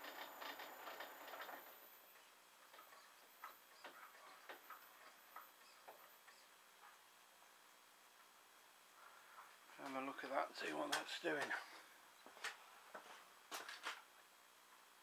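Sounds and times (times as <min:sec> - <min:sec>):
lathe clattering: 0:00.0 - 0:06.3.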